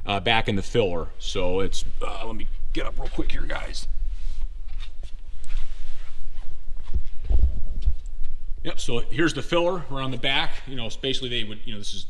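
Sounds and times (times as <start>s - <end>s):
rustling: 2.5s - 8.7s
shuffling footsteps: 2.8s - 8.6s
low thumps: 6.6s - 8.7s.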